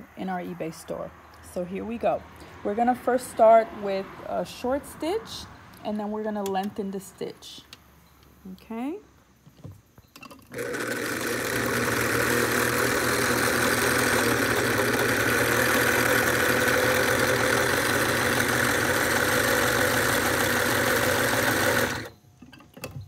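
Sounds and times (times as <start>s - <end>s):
sewing machine running: 10.5s - 22.1s.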